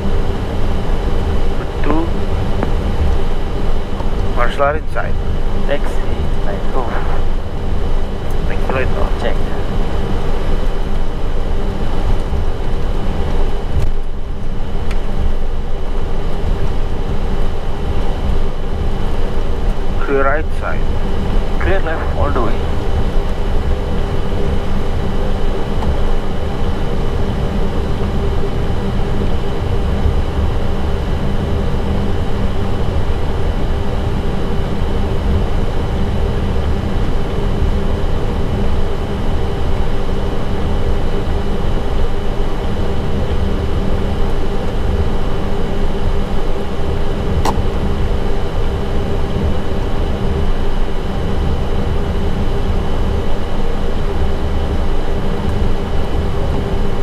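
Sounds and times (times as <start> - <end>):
aircraft engines idling rumble: 0.0 - 57.0.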